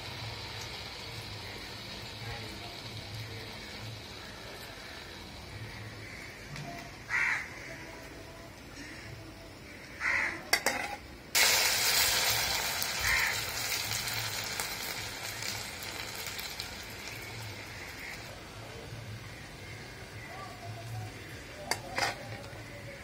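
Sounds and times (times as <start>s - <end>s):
food sizzling in hot oil: 0.0s - 6.5s, 10.4s - 23.0s
crow cawing: 3.6s - 8.0s, 8.8s - 10.5s, 13.0s - 13.8s, 17.6s - 18.3s.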